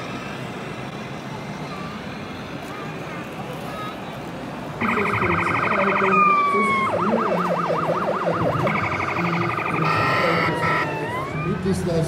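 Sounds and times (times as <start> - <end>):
electronic siren from small speaker: 4.8 - 11.7
horn-like blare: 9.6 - 10.9.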